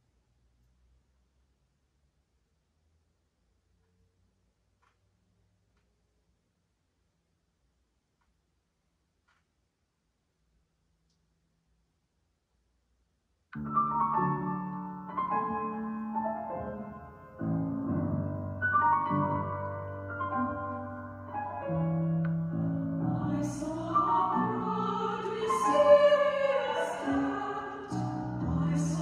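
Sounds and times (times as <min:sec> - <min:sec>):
classical piano music: 0:13.6 - 0:29.0
operatic singing voice: 0:23.0 - 0:29.0.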